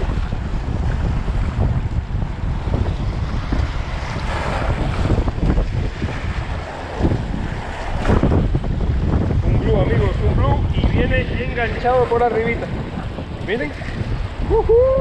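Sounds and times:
waves splashing against rocks: 0:00.0 - 0:10.7
wind buffeting microphone: 0:00.0 - 0:15.0.

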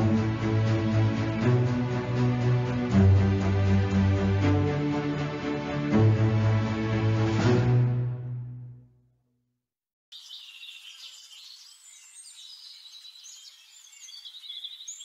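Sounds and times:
background music: 0:00.0 - 0:09.1
birds chirping: 0:10.1 - 0:15.0.

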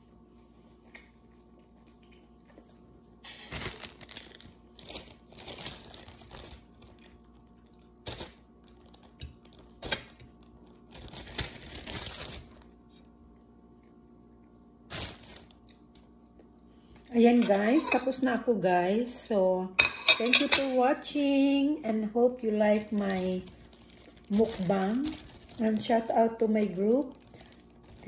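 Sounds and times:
plastic bag crinkling: 0:03.3 - 0:13.0, 0:14.9 - 0:16.2, 0:22.3 - 0:28.0.

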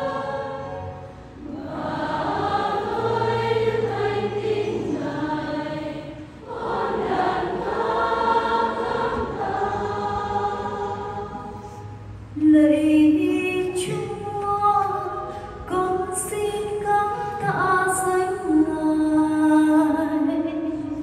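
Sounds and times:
choir singing: 0:00.0 - 0:11.9.

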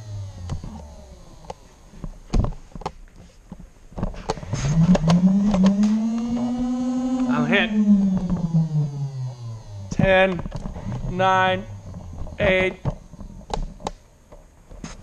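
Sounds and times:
electric motor whine: 0:00.0 - 0:01.9, 0:04.4 - 0:13.9
sharp clicks and knocks: 0:09.9 - 0:11.2, 0:11.9 - 0:15.0.

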